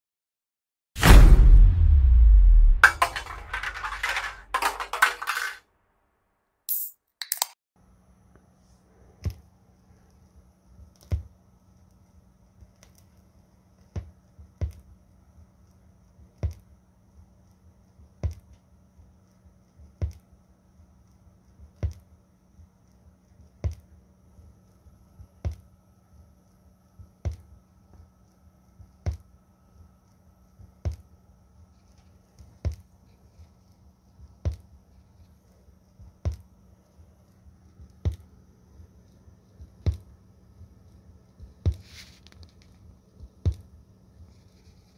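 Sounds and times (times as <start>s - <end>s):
warped vinyl record thumping: 1.0s - 3.5s
faint steady hum: 7.8s - 44.9s.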